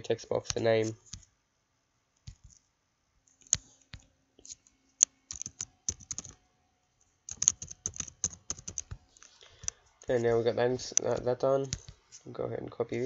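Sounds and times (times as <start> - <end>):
typing on keyboard: 5.3 - 6.4, 7.3 - 9.0.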